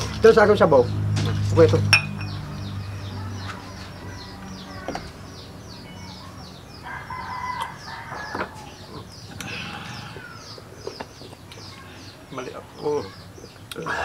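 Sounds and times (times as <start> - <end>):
rooster crowing: 6.8 - 9.0.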